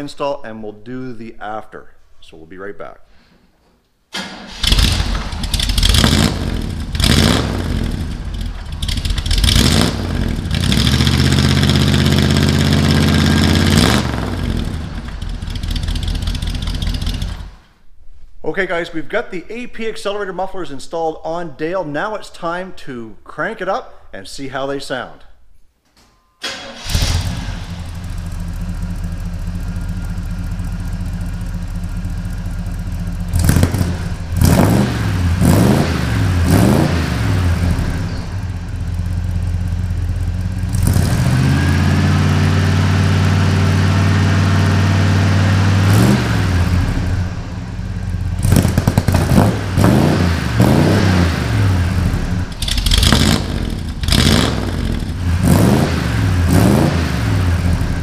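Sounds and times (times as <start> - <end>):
car engine idling and revving: 4.5 - 17.6, 26.8 - 58.0.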